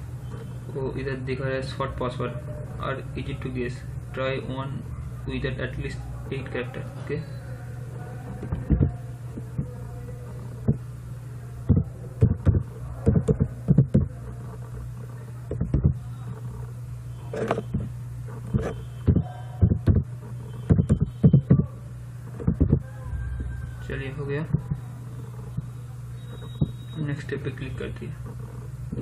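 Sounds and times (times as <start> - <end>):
low electrical hum: 0.0 - 29.0
keyboard typing: 11.6 - 16.6, 17.4 - 23.6.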